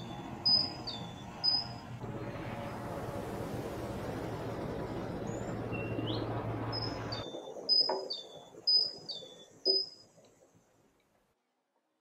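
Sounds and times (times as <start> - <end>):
birds chirping: 0.0 - 2.0, 4.8 - 10.0
steady background hum: 0.0 - 9.9.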